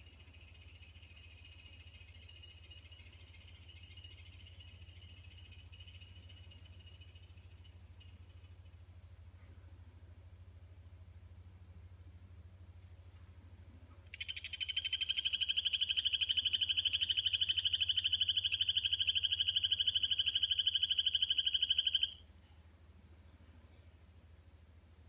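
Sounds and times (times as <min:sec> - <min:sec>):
frog high-pitched trill: 0:00.0 - 0:08.2, 0:14.1 - 0:22.2.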